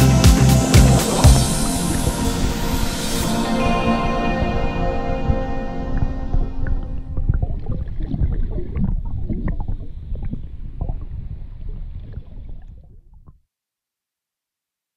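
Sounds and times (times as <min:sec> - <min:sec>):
muffled underwater rumble: 0:04.4 - 0:13.4.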